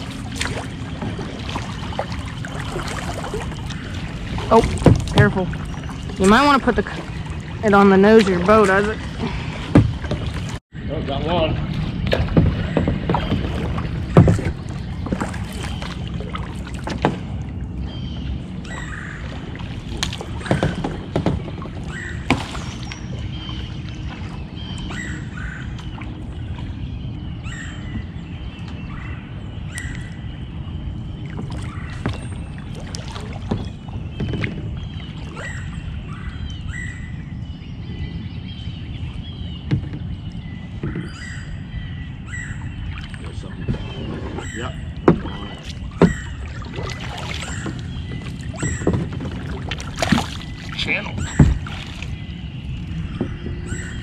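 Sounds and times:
paddle knocking on hull: 0:00.0 - 0:10.6, 0:11.6 - 0:17.5, 0:19.2 - 0:26.0, 0:31.3 - 0:35.7, 0:39.6 - 0:41.2, 0:42.9 - 0:54.0
birds chirping: 0:00.0 - 0:54.0
paddles splashing in water: 0:00.0 - 0:54.0.

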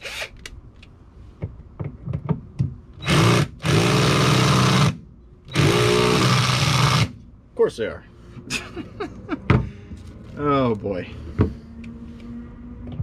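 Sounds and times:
cordless drill motor running: 0:00.0 - 0:00.4, 0:03.0 - 0:04.9, 0:05.5 - 0:07.1.

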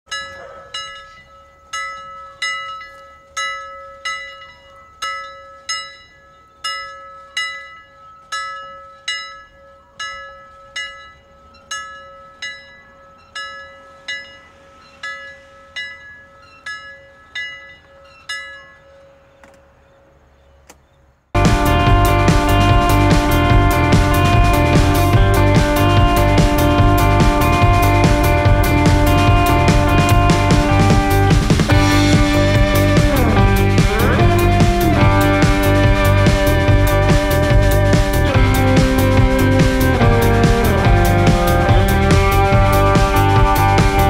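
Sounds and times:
bell ringing: 0:00.1 - 0:19.3
steady hum: 0:21.4 - 0:44.0.

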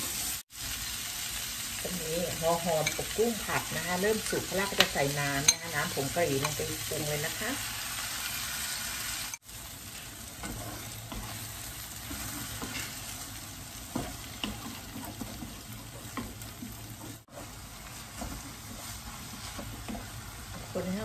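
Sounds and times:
food sizzling in frying pan: 0:00.0 - 0:21.0
wooden spatula scraping pan: 0:10.4 - 0:13.2, 0:13.9 - 0:21.0.

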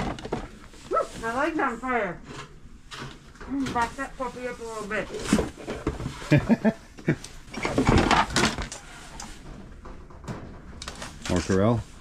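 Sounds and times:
dishes and containers rattling: 0:07.6 - 0:08.7.

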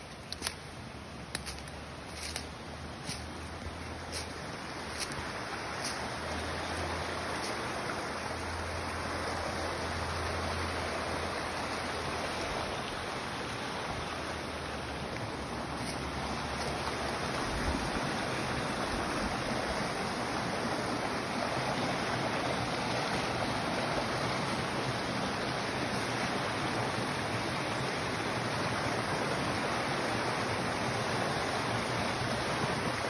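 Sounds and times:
stream flowing over rocks: 0:00.0 - 0:33.0.

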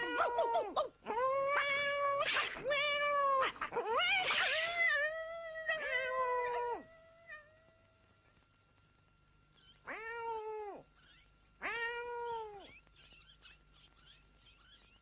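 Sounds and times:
cat meowing: 0:09.9 - 0:14.9.

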